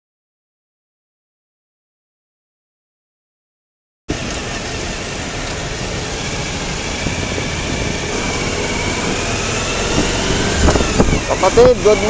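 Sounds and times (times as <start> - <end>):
road traffic engines: 4.1 - 12.0.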